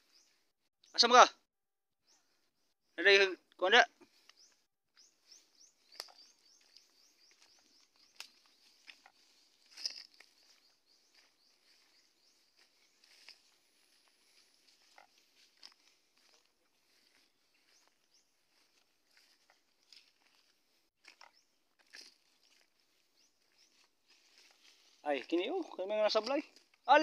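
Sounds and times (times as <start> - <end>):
footsteps crunching dry grass: 4.0 - 27.0
twigs snapping: 5.9 - 6.9, 8.1 - 10.4.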